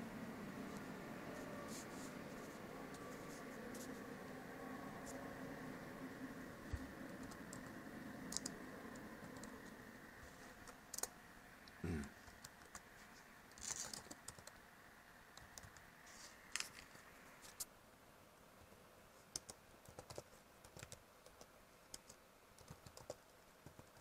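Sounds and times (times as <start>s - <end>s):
laptop keyboard typing: 6.7s - 9.8s, 10.6s - 11.2s, 12.2s - 12.9s, 13.5s - 14.7s, 15.3s - 15.9s, 19.2s - 24.0s.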